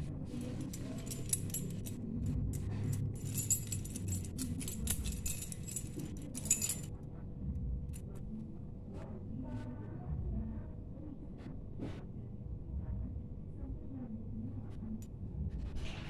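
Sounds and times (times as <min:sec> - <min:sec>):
metal keys jangling: 0:00.3 - 0:06.9.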